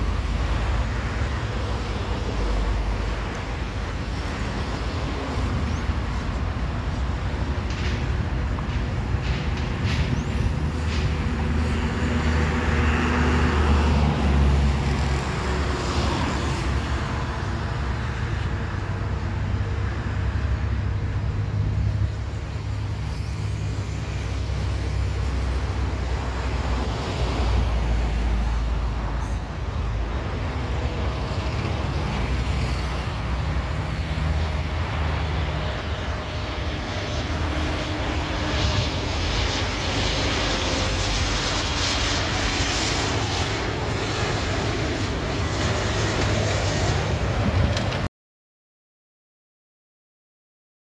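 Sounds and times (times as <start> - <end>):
jet engines approaching: 0.0 - 48.1
road traffic rumble: 0.0 - 48.1.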